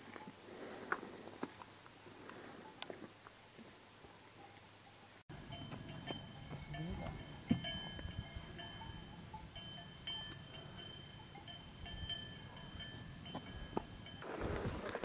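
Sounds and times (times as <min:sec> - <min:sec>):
livestock neck bells ringing: 0:04.1 - 0:15.0.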